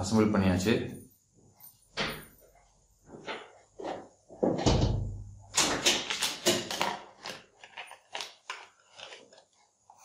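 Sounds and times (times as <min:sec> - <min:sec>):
plastic blister pack crinkling: 0:06.1 - 0:10.0.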